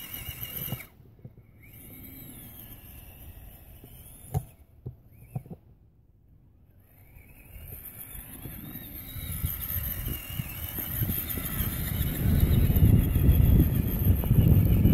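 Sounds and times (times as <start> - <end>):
electric motor whining: 0.0 - 5.6, 6.6 - 14.9
tires crunching in snow: 6.8 - 14.9.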